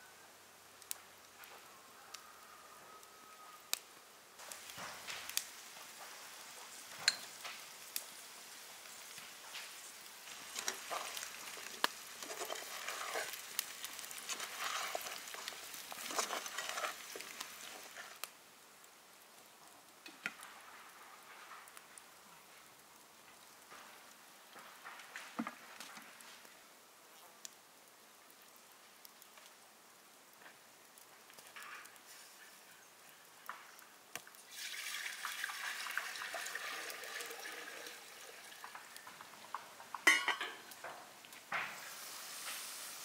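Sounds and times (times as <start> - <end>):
pumpkin sizzling in a pan: 3.3 - 43.0
wooden spoon scraping a pan: 9.1 - 18.3.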